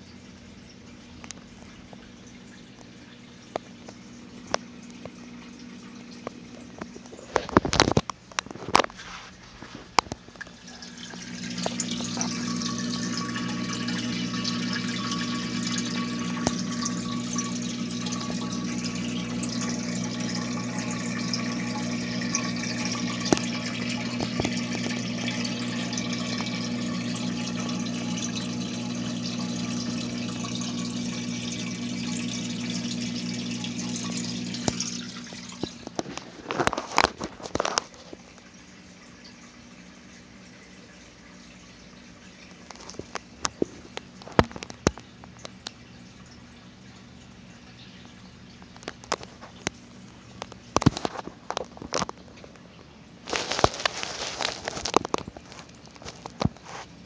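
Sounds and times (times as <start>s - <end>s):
pump motor hum: 0.0s - 57.0s
water churning and splashing: 9.8s - 38.4s.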